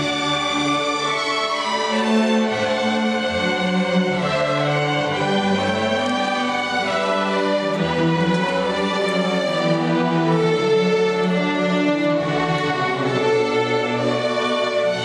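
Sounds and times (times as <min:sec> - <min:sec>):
string orchestra playing: 0:00.0 - 0:15.0.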